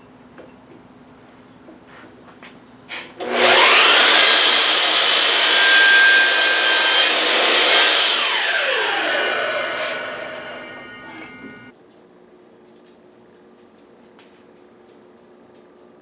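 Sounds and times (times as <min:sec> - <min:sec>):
saw blade cutting wood: 0:02.9 - 0:11.7
miter saw whining: 0:03.2 - 0:11.7.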